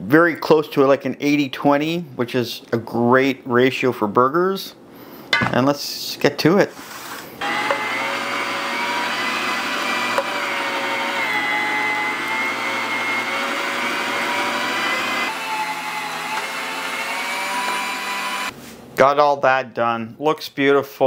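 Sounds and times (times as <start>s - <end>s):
electric meat grinder whining: 7.4s - 18.5s.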